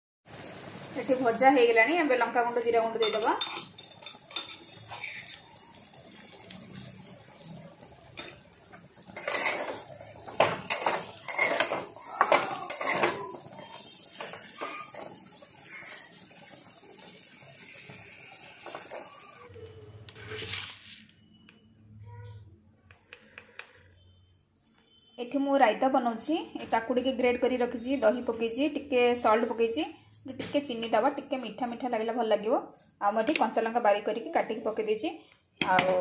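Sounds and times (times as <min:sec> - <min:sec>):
metal spatula scraping a wok: 0:03.0 - 0:05.4, 0:08.9 - 0:16.2.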